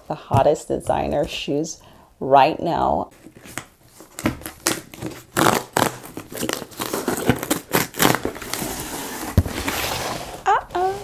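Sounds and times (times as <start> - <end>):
packing material crinkling: 3.1 - 9.8
cardboard box crackling and scraping: 3.4 - 11.0.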